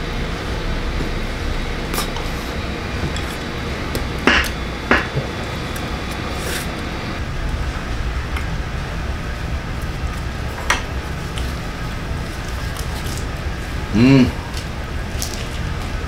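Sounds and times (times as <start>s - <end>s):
restaurant background hum: 0.0s - 16.0s.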